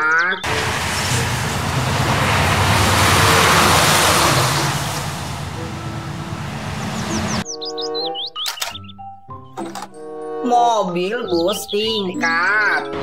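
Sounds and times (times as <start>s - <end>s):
trucks driving past: 0.4s - 7.4s.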